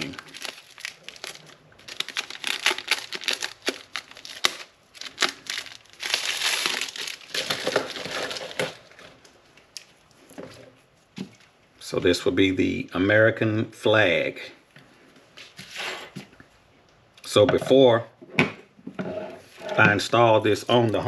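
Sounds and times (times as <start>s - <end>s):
plastic packaging crinkling: 0.0s - 10.2s.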